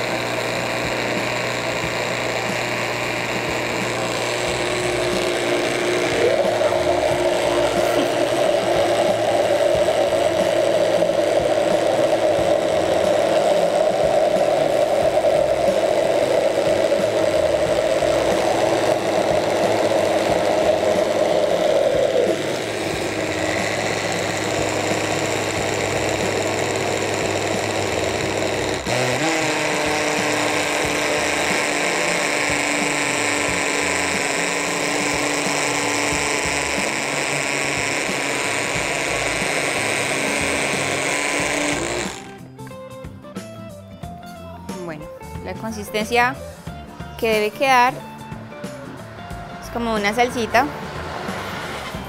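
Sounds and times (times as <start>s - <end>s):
blender click: 0.0s - 42.4s
electric blender running: 0.0s - 42.6s, 47.2s - 48.0s, 49.7s - 52.0s.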